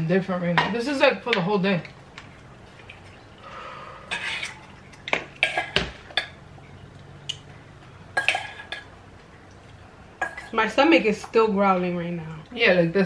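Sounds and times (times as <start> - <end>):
metal spoon scraping in steel bowl: 4.1 - 4.8
dishes clattering: 4.1 - 6.8, 8.1 - 9.0, 10.2 - 10.6.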